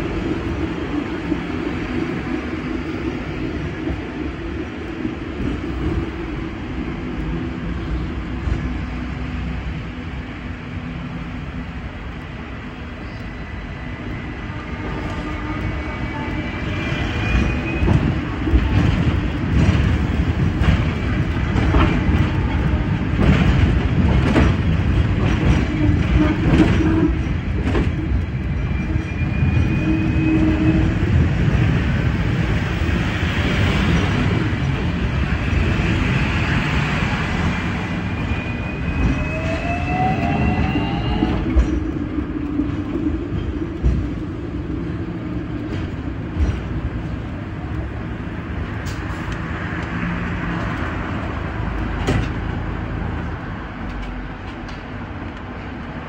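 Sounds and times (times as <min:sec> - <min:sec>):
tram wheels rumbling: 0:00.0 - 0:56.0.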